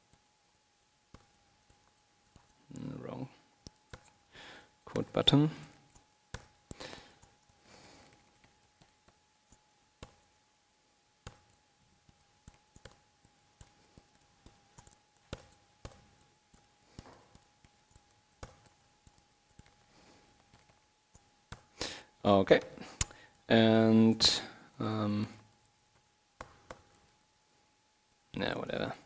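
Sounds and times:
keyboard keystrokes: 5.6s - 6.6s, 7.2s - 10.3s, 11.2s - 13.0s, 13.6s - 19.8s, 26.4s - 27.1s.

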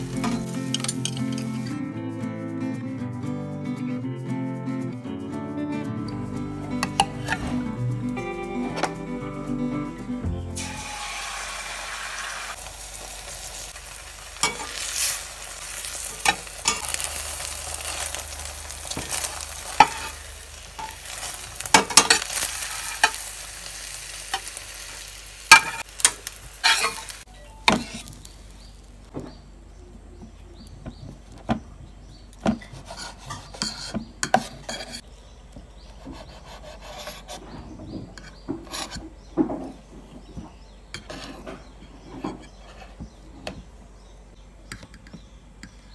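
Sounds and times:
omelette sizzling in oil: 10.6s - 28.8s
metal spatula scraping a pan: 18.8s - 23.3s, 26.6s - 28.2s, 32.8s - 35.1s, 41.0s - 43.0s.

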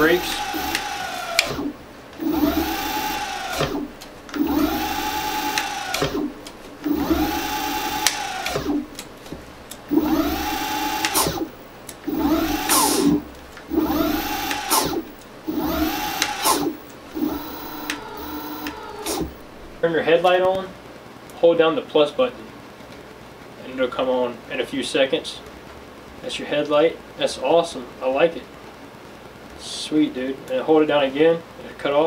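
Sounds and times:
electric scooter motors whining: 0.0s - 9.0s, 9.9s - 19.8s.

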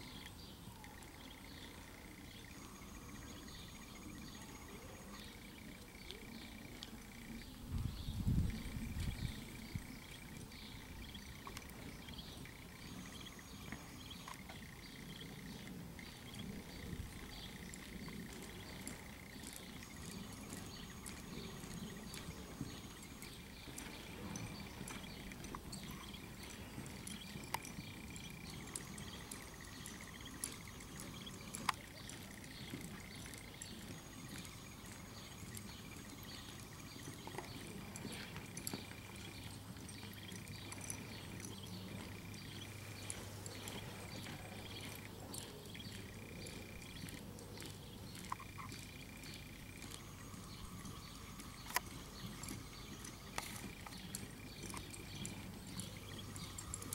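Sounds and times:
horse hoofbeats on dirt: 0.0s - 56.9s
steady background hiss: 0.0s - 56.9s
small clicks: 50.9s - 56.9s.

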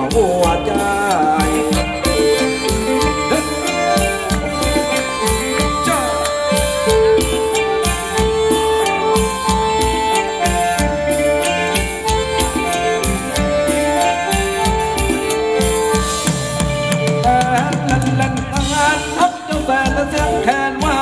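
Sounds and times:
wavering melody line: 0.0s - 19.1s
held melody notes: 0.0s - 19.2s
steady drum beat: 0.0s - 21.0s.

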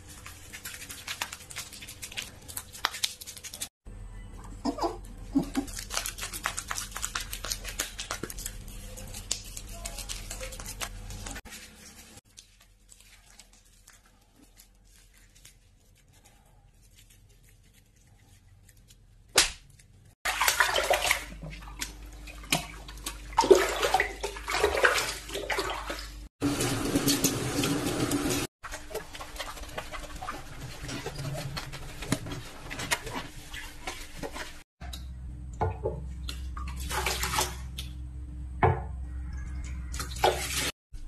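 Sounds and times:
water running and splashing: 20.2s - 34.7s, 36.3s - 37.8s, 39.9s - 40.8s.

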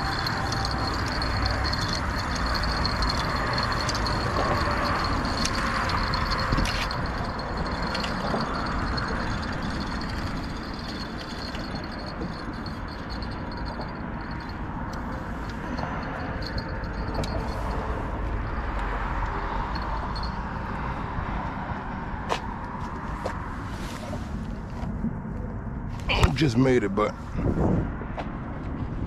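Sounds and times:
fishing reel clicking: 0.0s - 17.8s
wind on microphone: 0.0s - 22.2s, 27.2s - 29.0s
road traffic rumble: 0.0s - 29.0s.

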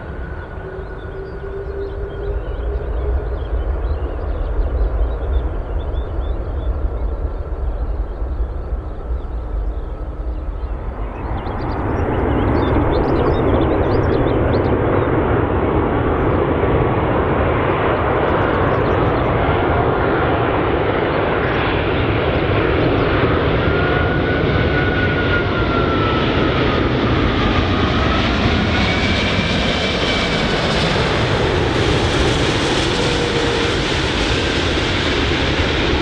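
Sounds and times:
faint engine whine: 0.0s - 36.0s
jet engine roar: 0.0s - 36.0s.

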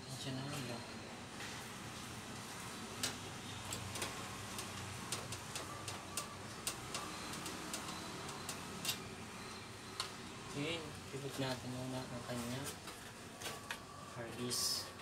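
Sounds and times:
cables and plugs clicking: 3.0s - 9.1s.

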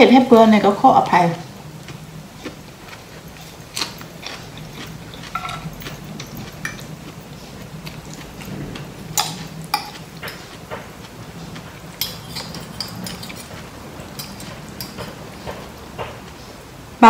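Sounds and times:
low steady hum: 0.0s - 17.0s
chewing: 1.8s - 16.6s
cutlery clinking on plate: 3.4s - 6.9s, 9.1s - 10.9s, 11.9s - 16.2s.

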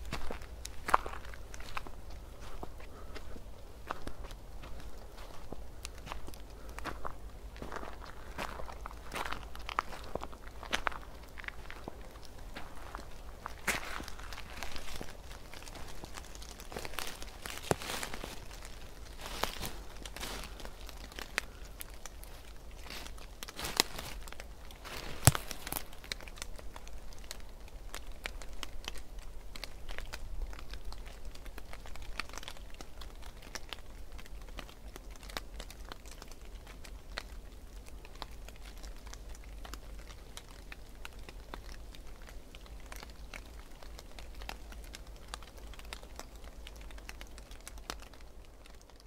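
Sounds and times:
footsteps crunching dry leaves: 0.0s - 27.4s.

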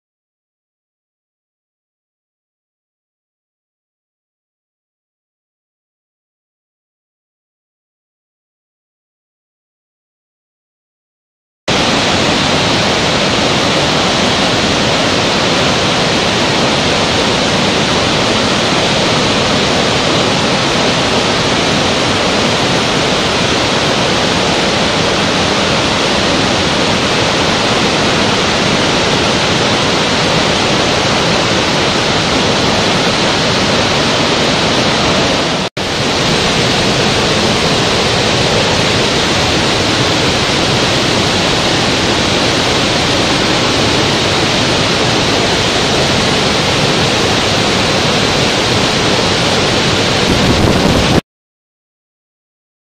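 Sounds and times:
waterfall rushing: 11.7s - 51.2s.

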